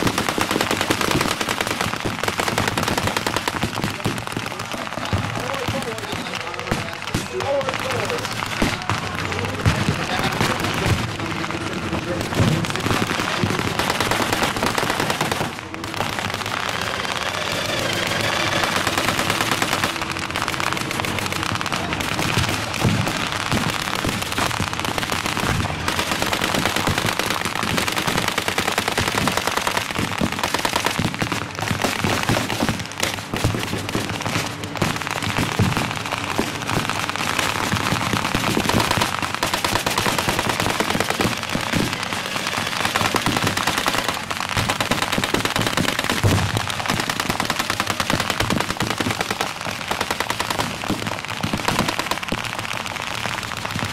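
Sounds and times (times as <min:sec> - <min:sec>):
machine-gun bursts: 0:16.7 - 0:20.1.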